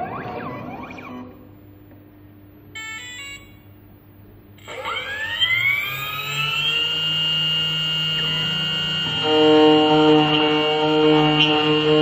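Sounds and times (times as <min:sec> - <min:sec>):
machine motor whine rising: 0:02.8 - 0:03.6, 0:04.6 - 0:12.0.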